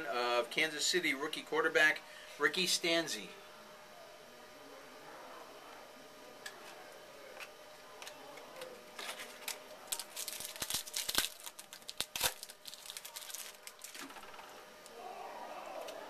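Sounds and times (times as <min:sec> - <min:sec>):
wrapper tearing and crinkling: 0:09.0 - 0:14.1.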